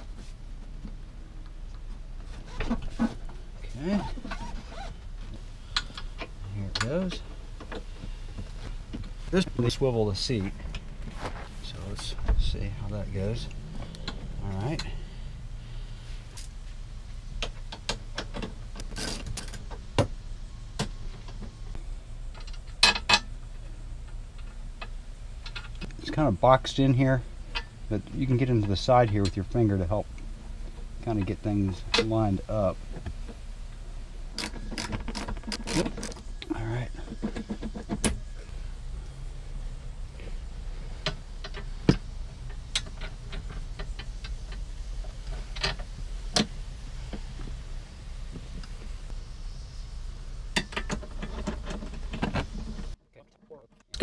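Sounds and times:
clicks and knocks of parts: 0:34.3 - 0:38.2.

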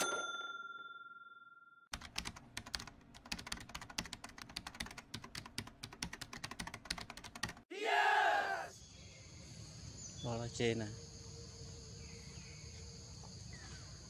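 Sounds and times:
bell ding: 0:00.0 - 0:01.9
keyboard typing clicks: 0:01.9 - 0:07.6.

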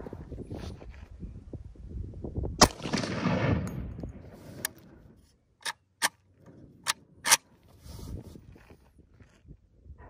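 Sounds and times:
rifle shot with echo: 0:02.6 - 0:04.4
quieter sharp cracks: 0:02.6 - 0:05.0.

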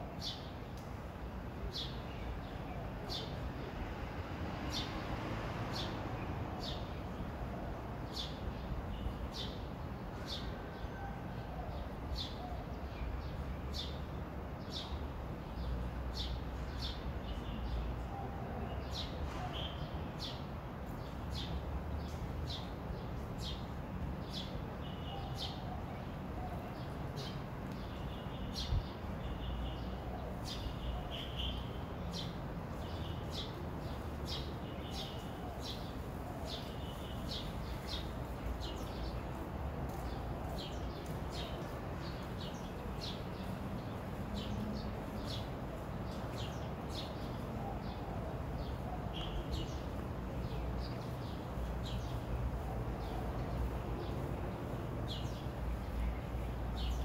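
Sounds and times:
small birds chirping: 0:11.7 - 0:57.0.

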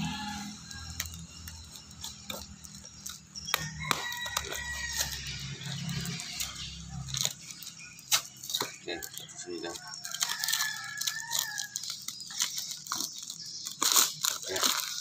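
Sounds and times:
rooster crowing: 0:00.0 - 0:01.2, 0:03.4 - 0:06.7, 0:08.9 - 0:12.0
cardboard cracking and scraping: 0:00.6 - 0:15.0.

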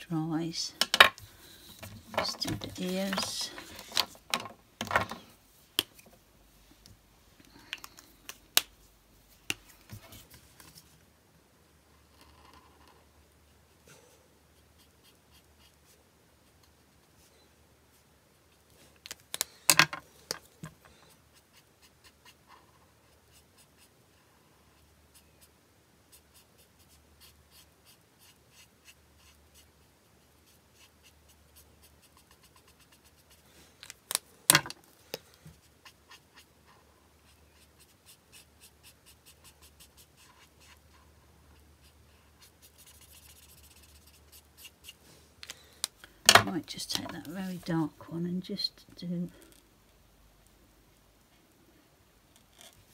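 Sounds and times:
marker scratching on card: 0:26.1 - 0:29.7, 0:30.4 - 0:33.4, 0:37.2 - 0:40.8, 0:41.8 - 0:45.0.

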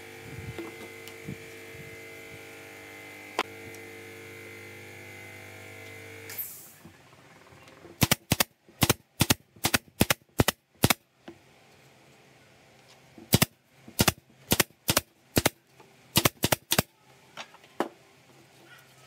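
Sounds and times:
pneumatic nail gun firing: 0:06.0 - 0:06.8, 0:08.0 - 0:11.0, 0:13.3 - 0:16.9.

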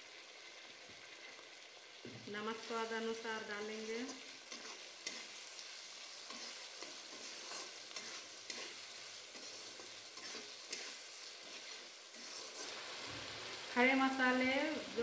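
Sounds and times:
tomatoes sizzling in oil: 0:00.0 - 0:15.0
metal spatula scraping a pan: 0:03.7 - 0:13.6.

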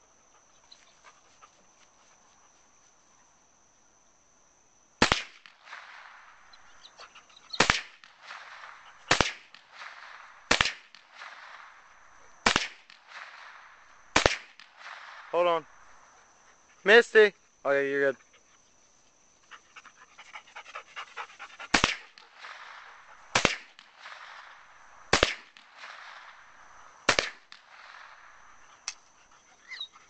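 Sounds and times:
insects chirring: 0:00.0 - 0:30.0
rifle shots with echo: 0:05.0 - 0:06.2, 0:07.6 - 0:15.3, 0:21.7 - 0:28.6.

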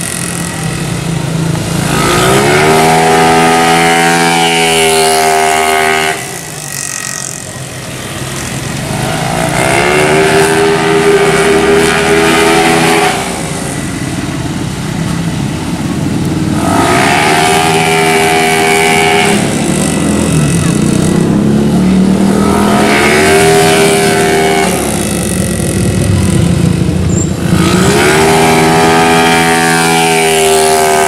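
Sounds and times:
motorcycle engines revving: 0:00.0 - 0:31.0.

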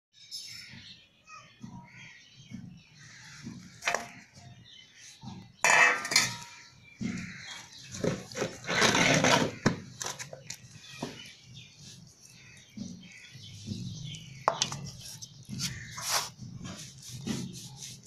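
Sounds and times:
steel plate clattering and scraping: 0:05.2 - 0:10.5.

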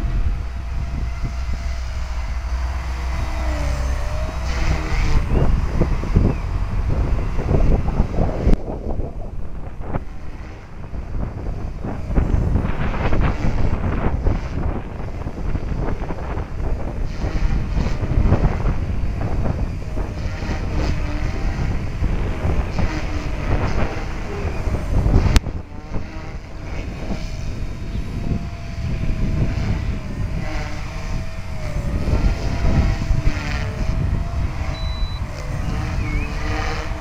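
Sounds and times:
rc helicopter whine: 0:00.0 - 0:37.0
wind buffeting microphone: 0:00.0 - 0:37.0.

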